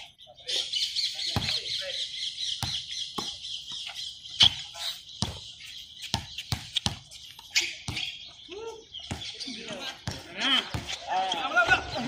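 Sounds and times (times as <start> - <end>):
birds chirping: 0.0 - 12.0
basketball bouncing on hard court: 1.3 - 1.7, 2.6 - 3.8, 5.2 - 7.1.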